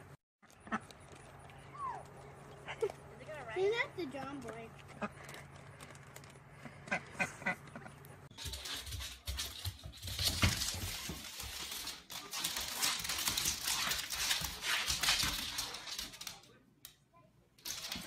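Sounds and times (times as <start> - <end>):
dog claws on wooden floor: 8.3 - 16.6, 17.6 - 18.0.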